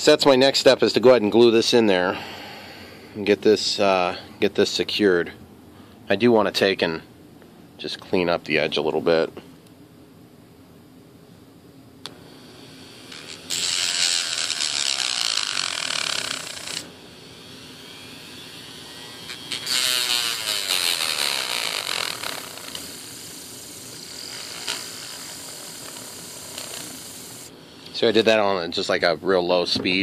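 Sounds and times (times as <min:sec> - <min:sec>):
rotary tool grinding rod: 0:12.6 - 0:23.3, 0:23.9 - 0:28.0.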